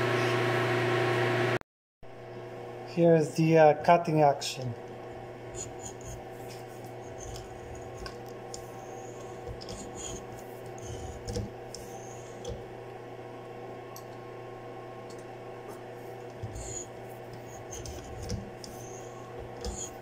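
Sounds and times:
steady machine hum: 0.0s - 20.0s
cutter scraping steel: 5.4s - 12.6s, 16.4s - 20.0s.

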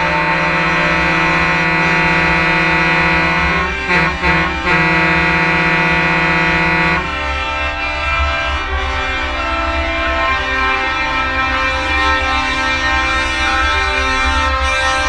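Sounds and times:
truck air horns chord: 0.0s - 8.0s
low engine rumble: 0.0s - 8.9s.

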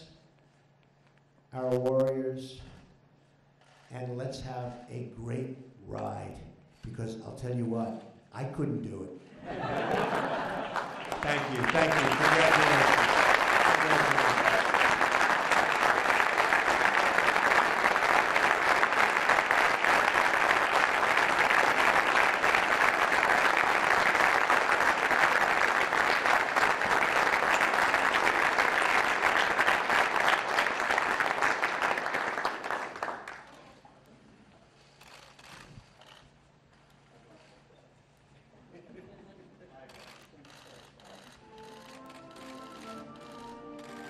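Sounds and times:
audience applauding: 9.6s - 33.6s, 41.2s - 44.0s.

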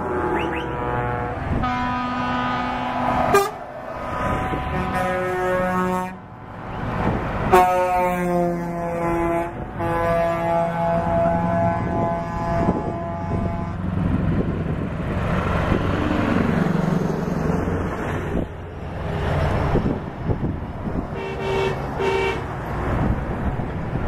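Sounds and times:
truck engines passing: 0.0s - 24.0s
truck air horns: 0.2s - 6.3s, 7.5s - 13.9s, 21.1s - 22.5s.

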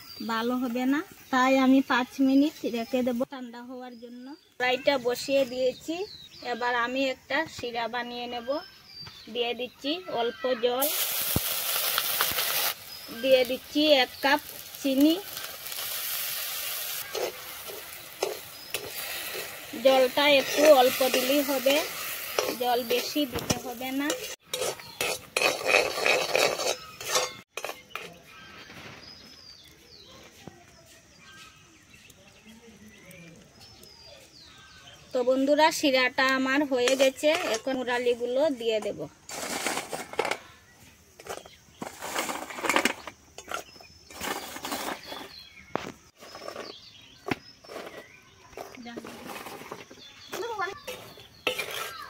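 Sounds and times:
dough hissing in hot syrup: 10.8s - 25.0s
metal skimmer scraping a pan: 17.0s - 28.2s, 47.6s - 52.0s.

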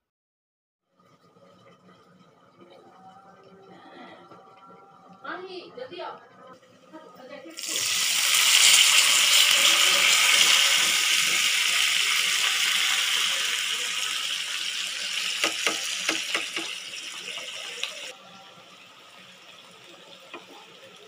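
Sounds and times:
oil sizzling in a frying pan: 7.2s - 21.0s
knocks against pan: 15.4s - 16.7s.

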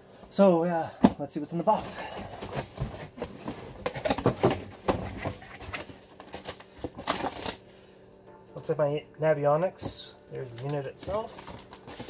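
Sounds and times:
box and packaging handled: 1.0s - 7.7s, 9.8s - 12.0s.

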